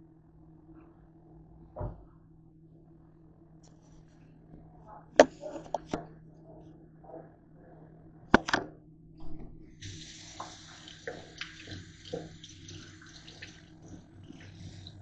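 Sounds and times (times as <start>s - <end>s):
faucet running into steel sink: 9.8s - 15.0s
hands rinsing cloth: 9.8s - 15.0s.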